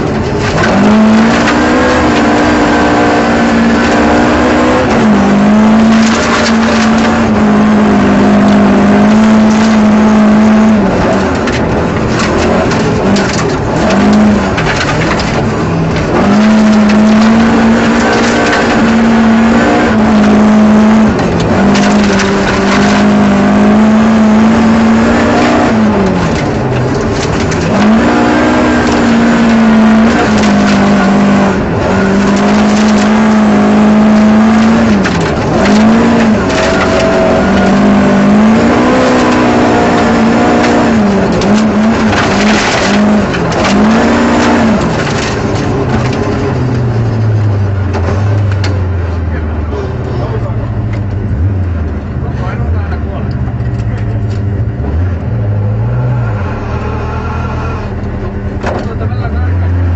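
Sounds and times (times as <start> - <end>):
rally car engine at high revs: 0.0 - 59.9
gravel rattling against underbody: 10.7 - 23.5, 25.9 - 28.1, 30.0 - 54.9.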